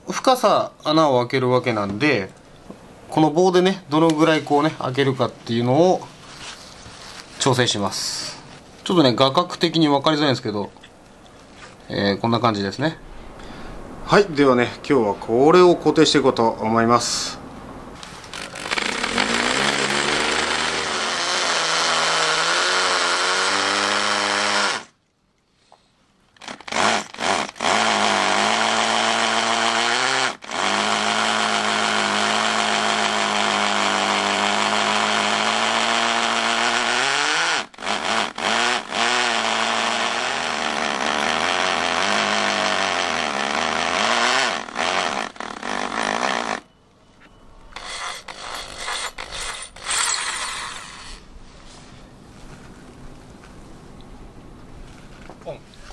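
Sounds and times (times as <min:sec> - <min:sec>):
hammer drill boring into concrete: 0:18.3 - 0:24.9, 0:26.4 - 0:46.6, 0:47.8 - 0:51.2.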